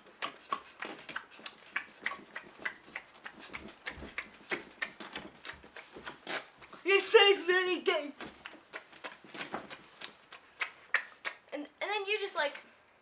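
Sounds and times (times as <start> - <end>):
person chewing with open mouth: 0.0 - 6.8, 8.2 - 11.5.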